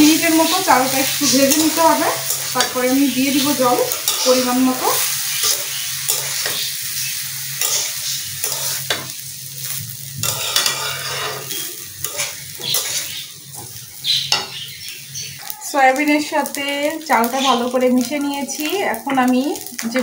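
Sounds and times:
oil sizzling: 0.0 - 20.0
metal spatula scraping pan: 1.4 - 4.6, 7.6 - 9.1, 10.2 - 13.2.

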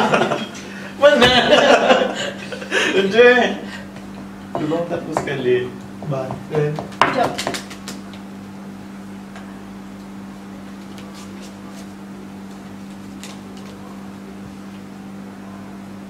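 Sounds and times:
low electrical hum: 0.0 - 16.0
playing cards clicking: 7.4 - 8.2, 12.9 - 13.8.

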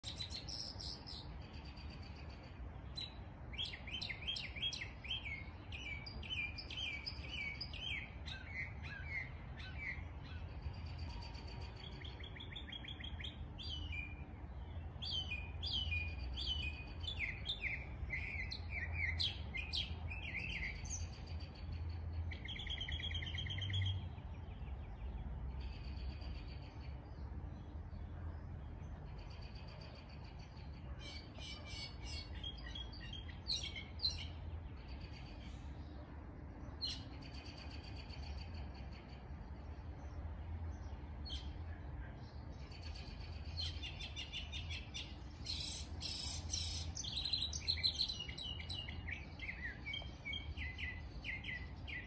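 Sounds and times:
songbirds chirping: 0.0 - 52.0.

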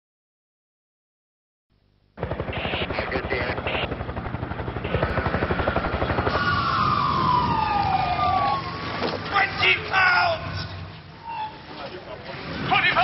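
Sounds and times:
helicopter rotor beating: 2.2 - 11.1
siren: 2.2 - 11.8.

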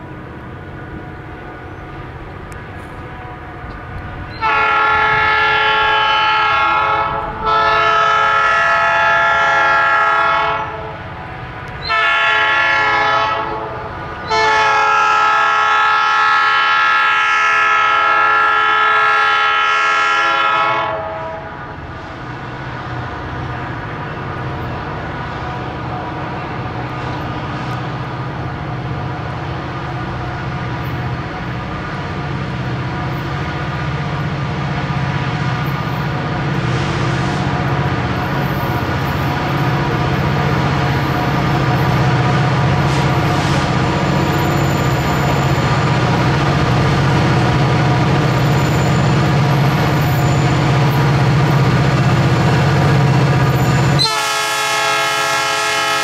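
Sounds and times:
diesel locomotive rumble: 0.0 - 56.0
locomotive air horn blasts: 4.4 - 11.0, 11.8 - 21.8, 53.8 - 56.0.

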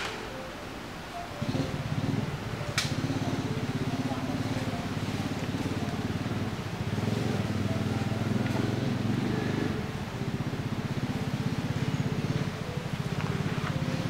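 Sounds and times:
motor engine throbbing: 0.0 - 14.0.

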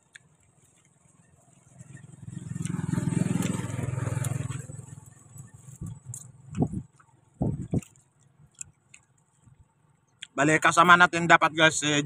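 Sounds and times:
vehicle engine rumble passing: 0.4 - 10.1.

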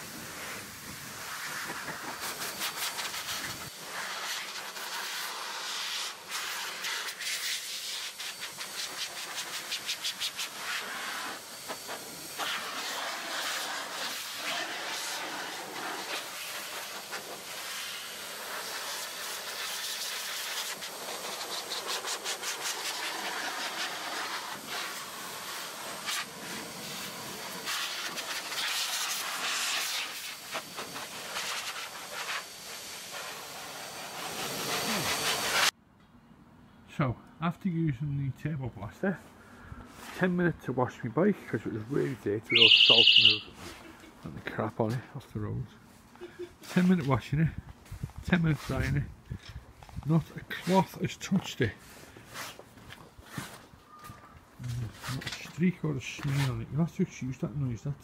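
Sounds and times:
motorcycle dryer blowing air: 0.0 - 35.8.

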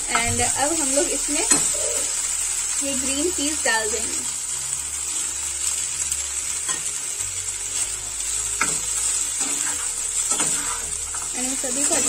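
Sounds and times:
vegetables sizzling in hot oil: 0.0 - 12.0
spoon scraping a pan: 1.3 - 2.1, 8.6 - 12.0.

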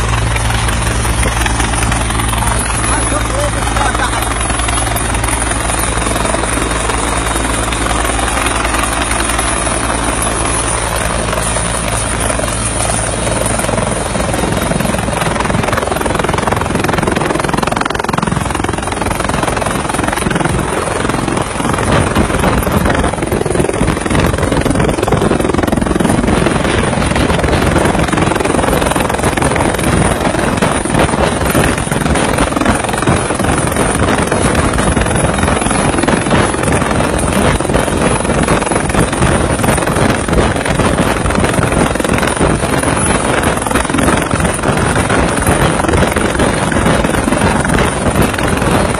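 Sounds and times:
helicopter engine and rotors: 0.0 - 48.9
low hum: 0.0 - 48.9.

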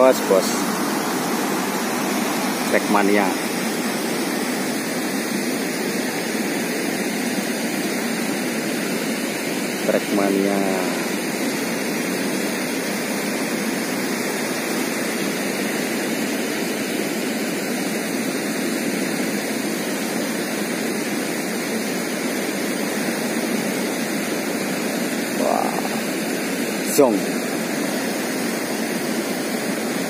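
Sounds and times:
water roaring through dam gate: 0.0 - 30.0.

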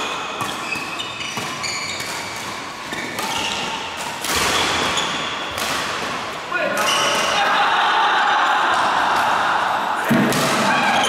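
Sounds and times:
shoes squeaking on court floor: 0.0 - 5.7, 10.7 - 11.0
racket hitting shuttlecock: 0.0 - 7.3, 10.0 - 11.0
sports hall noise: 0.0 - 11.0.

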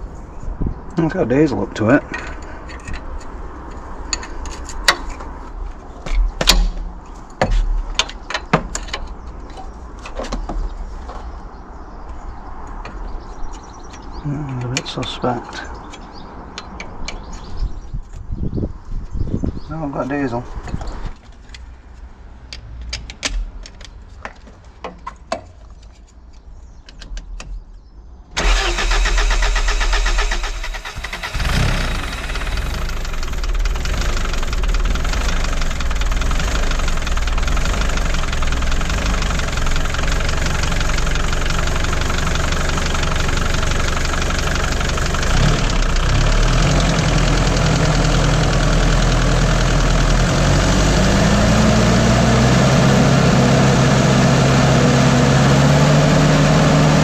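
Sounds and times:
sharp clicks and knocks: 2.0 - 5.4, 6.0 - 11.3, 12.0 - 17.5, 22.5 - 27.6
diesel forklift engine running: 28.4 - 57.0.

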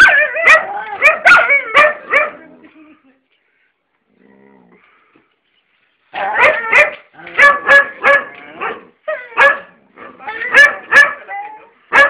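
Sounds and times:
dog barking: 0.0 - 2.4, 6.2 - 11.3.

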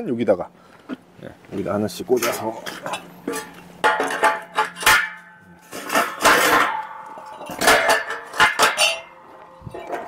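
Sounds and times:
metal brackets clanking on tubes: 2.1 - 10.0
metal scrape: 2.2 - 10.0.

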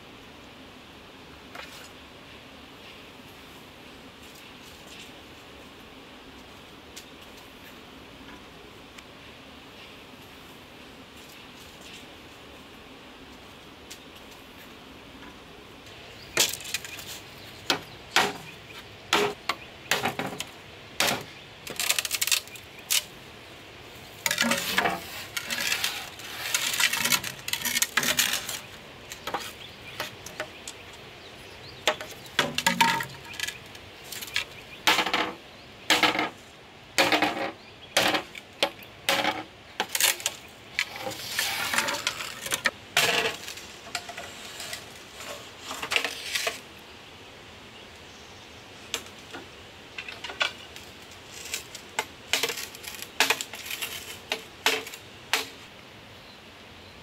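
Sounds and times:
knife scraping bamboo: 16.4 - 18.5, 19.1 - 23.1, 24.1 - 30.8, 31.9 - 36.4, 37.0 - 46.6, 51.2 - 55.6.

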